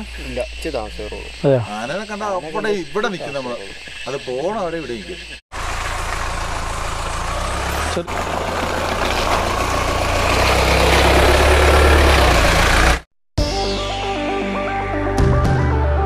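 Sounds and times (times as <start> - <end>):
vehicle engine at low revs: 5.5 - 13.1.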